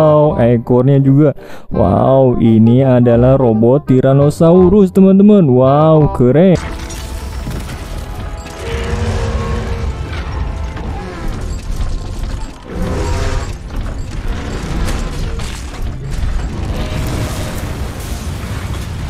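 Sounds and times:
music: 0:00.0 - 0:19.0
robot mechanical sounds: 0:06.6 - 0:19.0.

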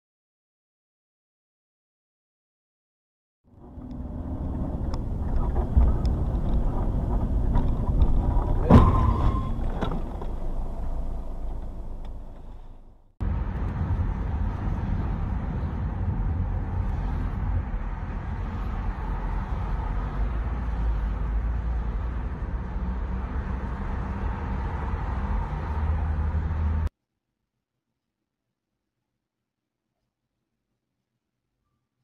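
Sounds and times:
car interior and road noise: 0:03.5 - 0:26.9.

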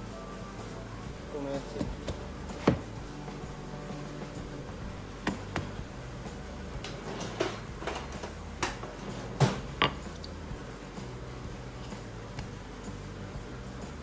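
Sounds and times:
dough tapping on board: 0:01.8 - 0:03.0
rolling pin knocking on board: 0:01.8 - 0:03.0, 0:09.7 - 0:10.1.

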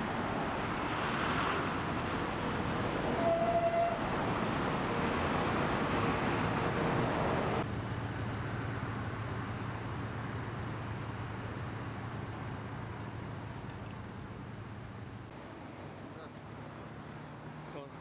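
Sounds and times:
kingfishers calling: 0:00.6 - 0:01.0, 0:01.7 - 0:06.4, 0:07.3 - 0:10.0, 0:10.7 - 0:11.4, 0:12.2 - 0:12.8, 0:14.2 - 0:15.7.

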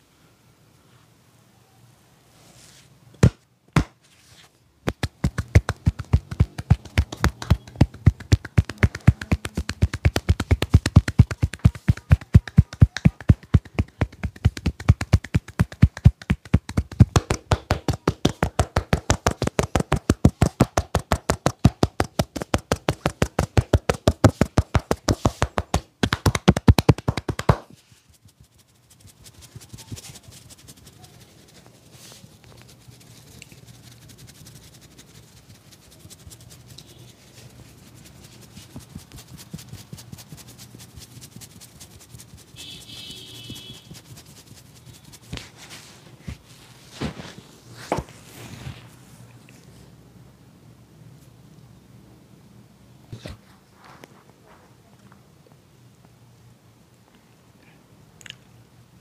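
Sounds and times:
hands tapping on head: 0:04.8 - 0:27.8
fingers rubbing: 0:04.9 - 0:48.8.

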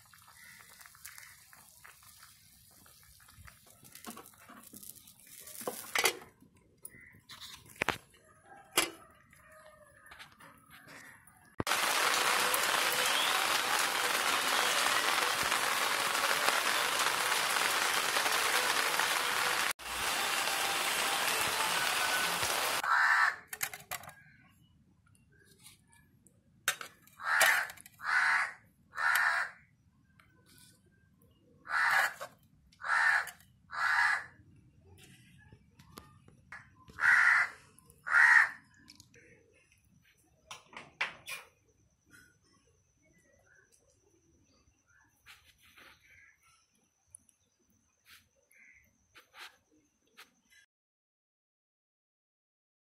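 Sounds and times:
crows cawing: 0:00.1 - 0:01.7, 0:21.8 - 0:23.5, 0:27.2 - 0:29.7, 0:31.6 - 0:32.2, 0:32.8 - 0:34.4, 0:36.9 - 0:38.8
loud steady hiss: 0:11.7 - 0:22.8.

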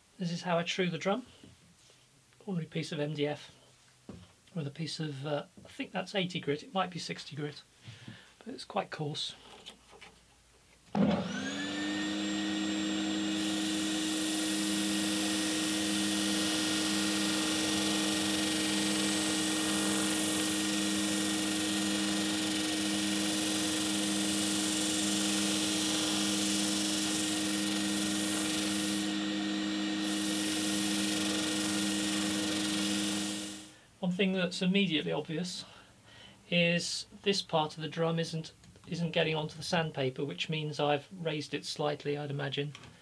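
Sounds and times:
drum sander humming: 0:11.0 - 0:33.8
sandpaper grinding on drum: 0:18.9 - 0:33.6.

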